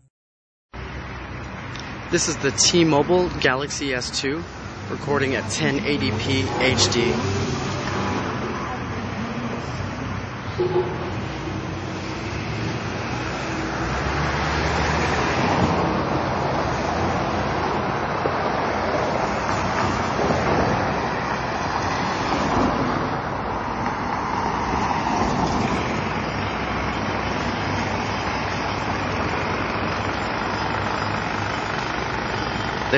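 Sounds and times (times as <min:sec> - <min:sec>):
cars driving past: 0:00.8 - 0:32.9.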